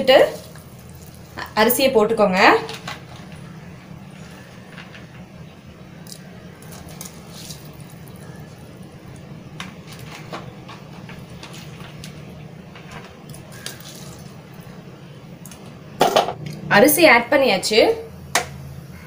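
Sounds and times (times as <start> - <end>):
water boiling and bubbling: 0.0 - 16.9
water pouring into pot: 6.0 - 9.3.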